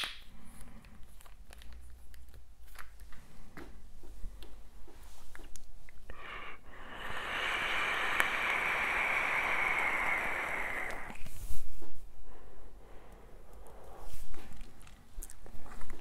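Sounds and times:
breathy exhale: 0:06.1 - 0:11.2
air hissing through vape: 0:06.8 - 0:11.4.

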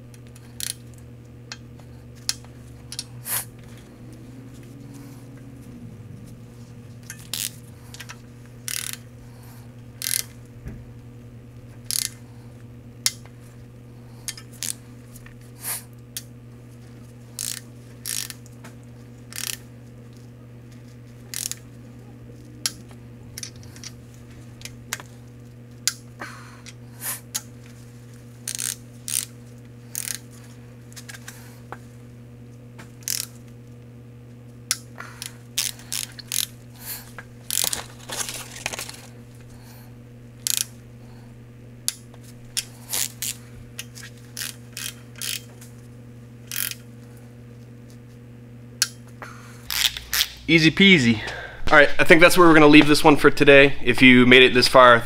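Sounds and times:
steady low hum: 0:00.0 - 0:55.0
ratchet wrench clicking: 0:00.2 - 0:00.9, 0:07.0 - 0:09.1, 0:10.0 - 0:10.4, 0:11.9 - 0:12.2, 0:14.3 - 0:14.8, 0:17.4 - 0:18.4, 0:19.3 - 0:19.6, 0:21.3 - 0:21.6, 0:28.4 - 0:29.3, 0:29.9 - 0:30.3, 0:33.0 - 0:33.4, 0:34.7 - 0:36.5, 0:37.4 - 0:37.9, 0:40.4 - 0:40.8, 0:42.6 - 0:45.5, 0:46.5 - 0:46.9, 0:49.7 - 0:50.4.

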